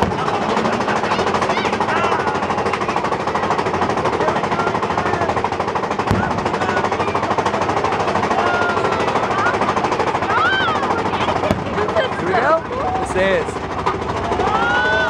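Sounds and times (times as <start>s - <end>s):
sharp bang: 0.0s - 0.7s, 6.0s - 7.2s, 11.4s - 12.1s
coaster train clattering on track: 0.0s - 15.0s.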